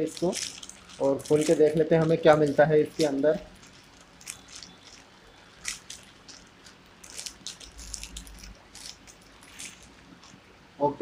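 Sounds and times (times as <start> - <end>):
plastic wrap crinkling: 0.0 - 10.5.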